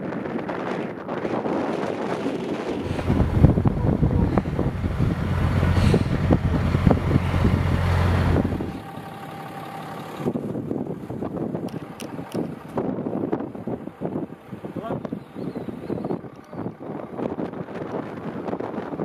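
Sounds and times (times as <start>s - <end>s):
wind buffeting microphone: 0.0s - 19.0s
pickup truck engine running: 2.8s - 14.8s.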